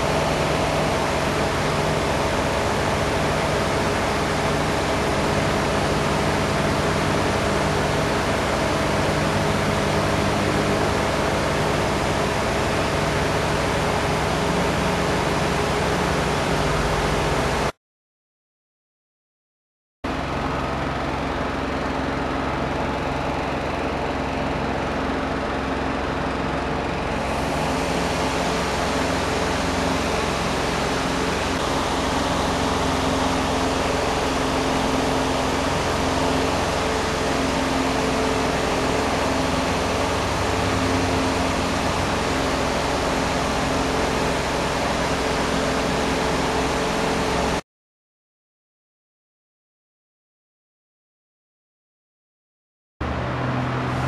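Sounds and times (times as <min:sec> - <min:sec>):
electric fan running: 0:00.0 - 0:17.7, 0:20.1 - 0:47.6, 0:53.0 - 0:54.0.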